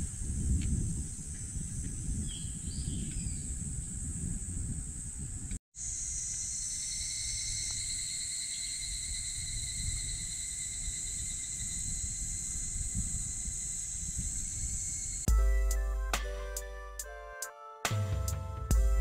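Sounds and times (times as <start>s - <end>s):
insects shrilling: 5.8s - 15.3s.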